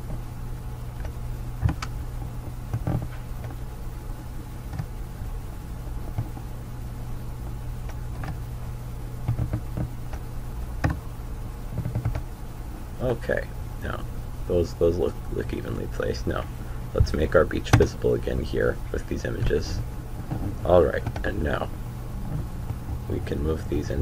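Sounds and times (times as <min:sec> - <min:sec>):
low electrical hum: 0:00.0 - 0:24.0.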